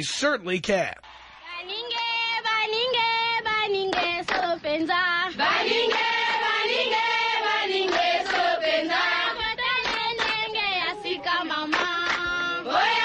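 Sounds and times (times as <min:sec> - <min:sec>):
group chanting: 0:05.4 - 0:13.0.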